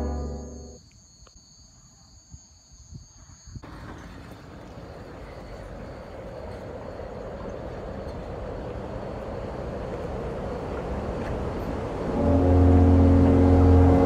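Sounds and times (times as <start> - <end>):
low droning music chord: 0.0 - 0.8, 12.1 - 14.0
street car traffic: 3.6 - 14.0.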